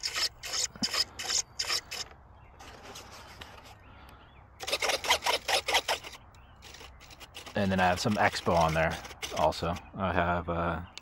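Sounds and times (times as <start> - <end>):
servos whirring: 0.0 - 3.8, 4.6 - 9.9.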